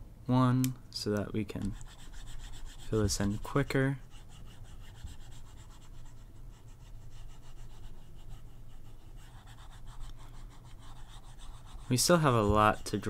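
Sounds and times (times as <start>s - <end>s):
stylus scratching tablet: 1.6s - 13.0s.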